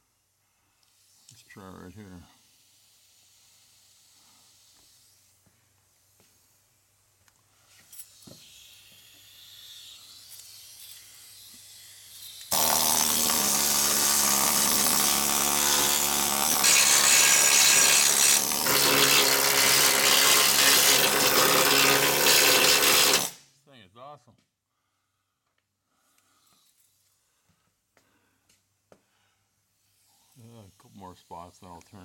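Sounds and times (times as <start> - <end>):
power tool running loudly: 8.2 - 23.4.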